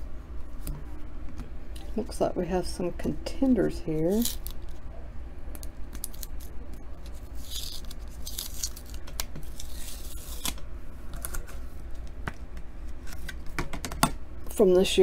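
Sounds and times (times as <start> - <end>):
tape peeling off plastic: 4.2 - 4.8, 5.6 - 11.6.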